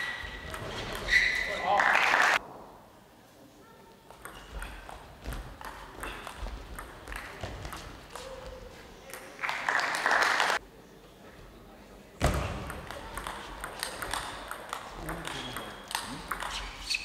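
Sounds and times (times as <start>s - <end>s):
loud applause: 1.5s - 2.4s, 9.4s - 10.6s.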